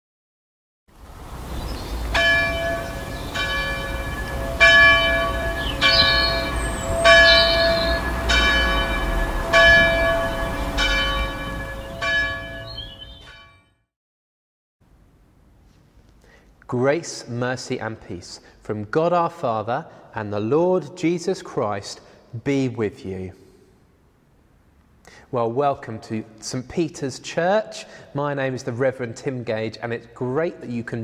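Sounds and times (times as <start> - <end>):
church bell tolling: 2.2 - 13.6.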